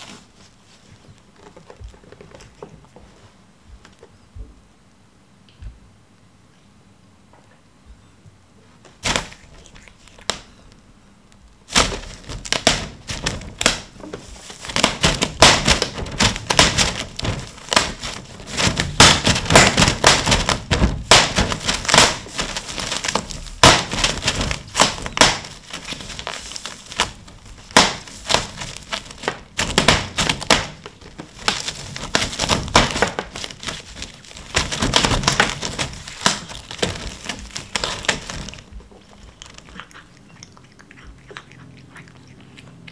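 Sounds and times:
plastic film crinkling: 0:00.0 - 0:03.0, 0:11.4 - 0:40.0.

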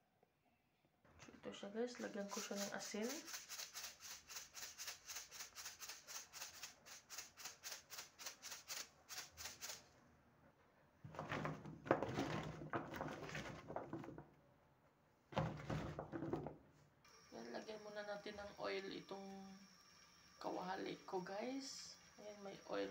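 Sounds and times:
salt shaker rattling: 0:02.0 - 0:09.9.

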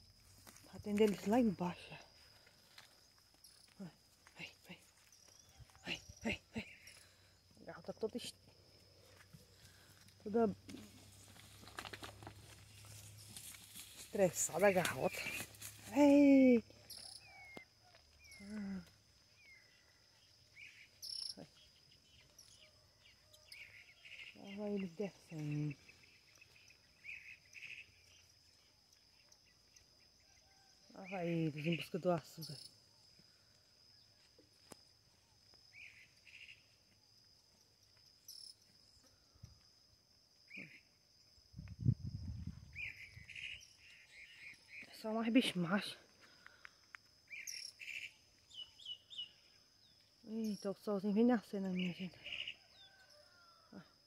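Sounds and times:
insects chirring: 0:00.0 - 0:54.0
short insect chirps: 0:06.6 - 0:24.8, 0:31.4 - 0:50.8.

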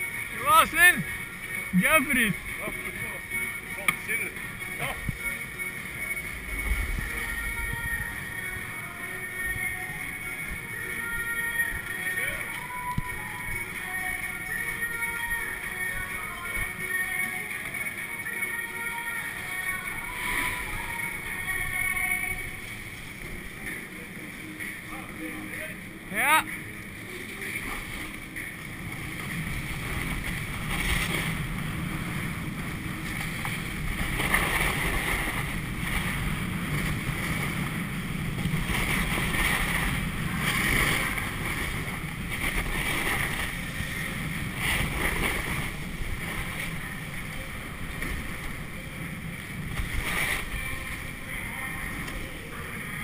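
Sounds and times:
edges scraping packed snow: 0:33.3 - 0:47.0.

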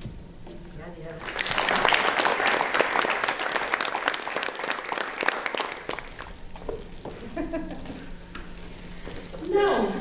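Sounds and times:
audience applauding: 0:01.2 - 0:06.3.

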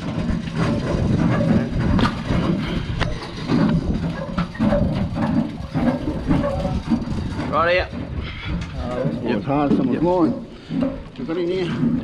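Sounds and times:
boat machinery rumbling: 0:00.0 - 0:12.0.

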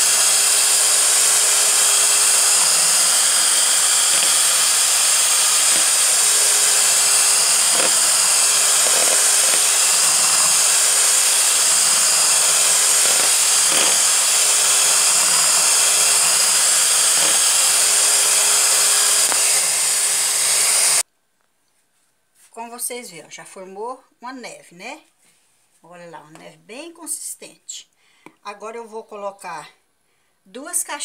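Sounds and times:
electric hand mixer whipping: 0:00.0 - 0:21.0.

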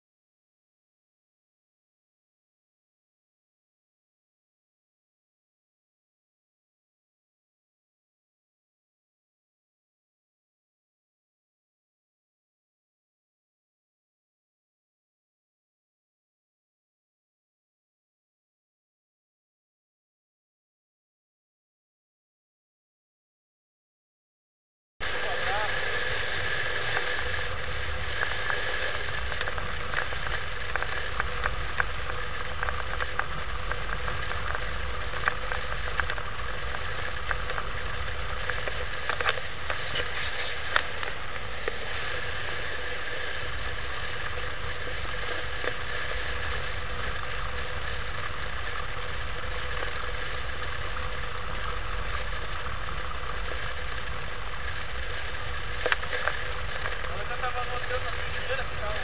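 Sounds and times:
motorcycle engine drone: 0:25.0 - 0:59.0
small crackles: 0:25.0 - 0:59.0
wind and road noise: 0:25.0 - 0:59.0.

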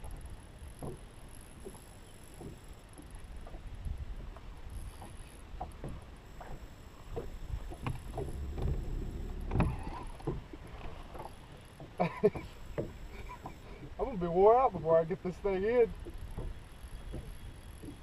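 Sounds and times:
wind rumble on microphone: 0:00.0 - 0:11.4
waves slapping boat hull: 0:02.4 - 0:18.0.

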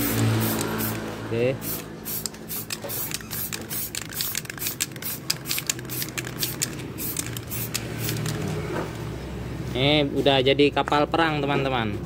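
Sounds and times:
spray can short squirts: 0:00.1 - 0:01.0, 0:01.6 - 0:08.5.

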